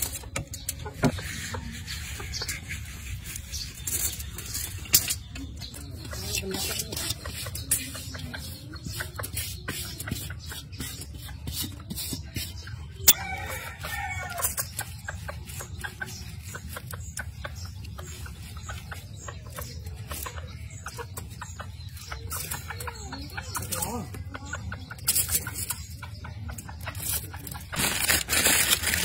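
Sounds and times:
hen clucking: 0:00.1 - 0:29.0
aluminium foil crinkling: 0:27.0 - 0:29.0.

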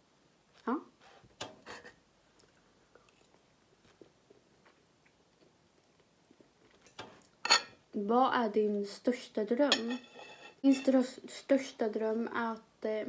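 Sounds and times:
person chewing food: 0:02.3 - 0:07.4.

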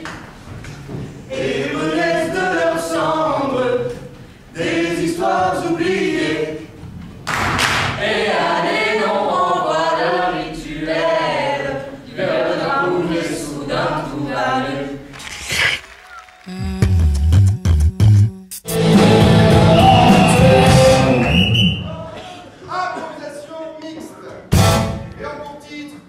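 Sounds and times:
group singing in chorus: 0:01.2 - 0:06.8, 0:07.8 - 0:15.2, 0:18.7 - 0:21.6.

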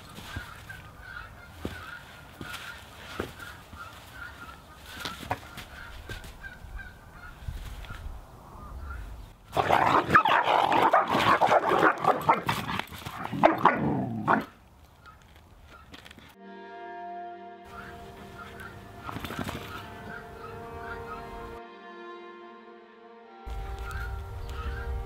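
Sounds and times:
dog barking: 0:10.0 - 0:12.5.

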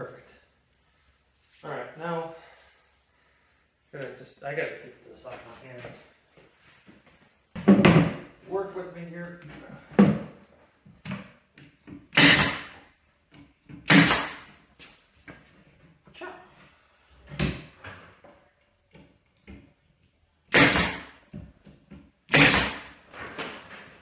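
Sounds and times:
nail gun firing: 0:12.1 - 0:12.8, 0:13.8 - 0:14.5, 0:20.5 - 0:21.2, 0:22.3 - 0:23.0.

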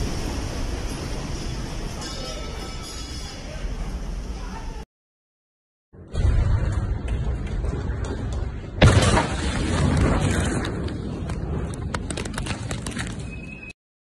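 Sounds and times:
loud explosion boom: 0:06.0 - 0:07.7, 0:08.8 - 0:11.6
sharp clattering cracks: 0:06.6 - 0:13.3.

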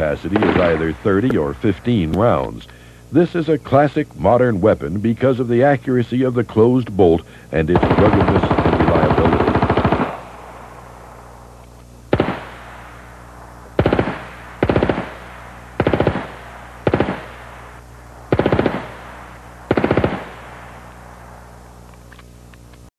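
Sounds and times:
submachine gun bursts: 0:07.8 - 0:10.2, 0:13.8 - 0:17.4, 0:18.3 - 0:19.0, 0:19.7 - 0:20.4.

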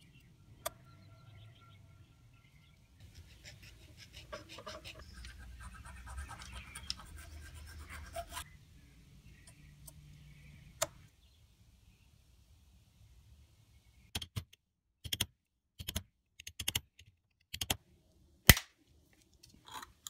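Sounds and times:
file scraping on knife handle: 0:03.0 - 0:08.4.

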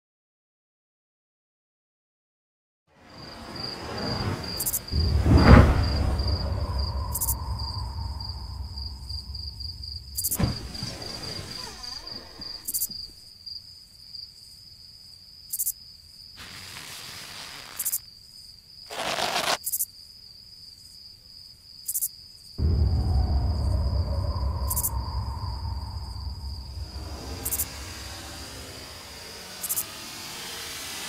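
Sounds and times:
loud low rumble: 0:03.1 - 0:13.1, 0:22.6 - 0:31.0
brief rush: 0:03.2 - 0:13.2, 0:22.6 - 0:31.0
insect trilling: 0:05.8 - 0:13.1, 0:16.6 - 0:18.1, 0:18.9 - 0:19.8, 0:22.9 - 0:31.0.

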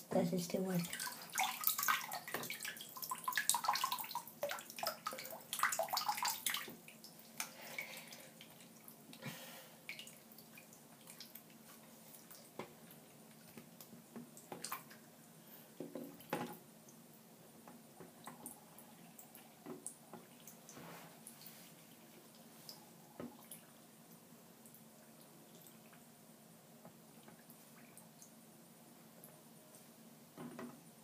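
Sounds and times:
water dripping: 0:00.5 - 0:09.2, 0:09.8 - 0:26.1, 0:26.8 - 0:28.4
water splashing in a sink: 0:00.8 - 0:09.2.

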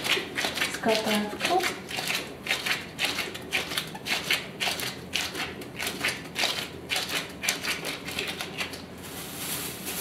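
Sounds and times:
plastic gloves crinkling: 0:08.7 - 0:10.0.

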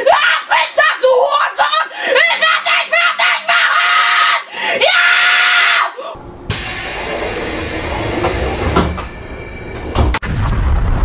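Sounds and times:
boy yelling: 0:00.0 - 0:06.0
train door pneumatic hiss: 0:06.2 - 0:10.2.

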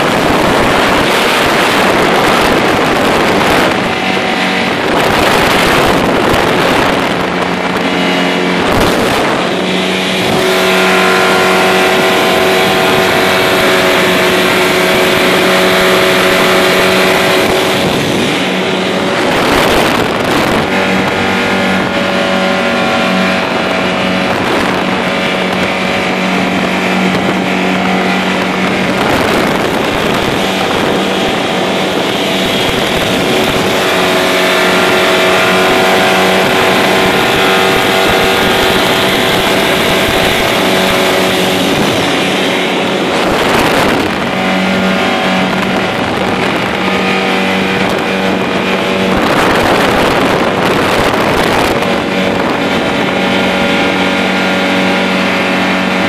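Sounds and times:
motorboat engine running: 0:00.0 - 0:56.0
water rushing along hull: 0:00.0 - 0:56.0.

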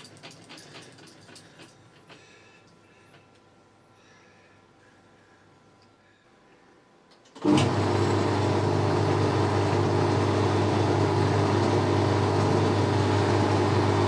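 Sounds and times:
lathe motor humming: 0:07.4 - 0:14.0.

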